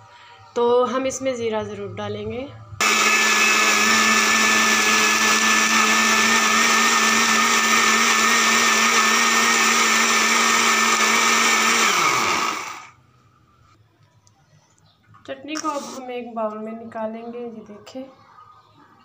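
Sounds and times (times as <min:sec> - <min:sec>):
motor winding down: 0:02.8 - 0:12.9
blender running: 0:02.8 - 0:13.0.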